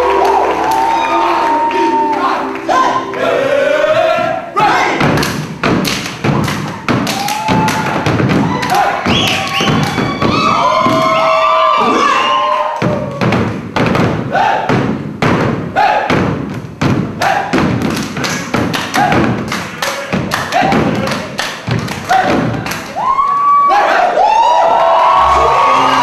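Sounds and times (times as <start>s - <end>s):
gospel music with vocals: 0.0s - 5.1s
loud rhythmic thumping: 2.0s - 11.5s, 12.8s - 23.0s.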